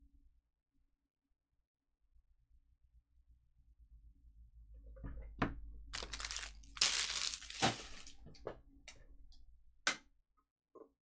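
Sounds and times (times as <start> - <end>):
plastic wrappers crinkling and tearing: 6.0 - 8.2.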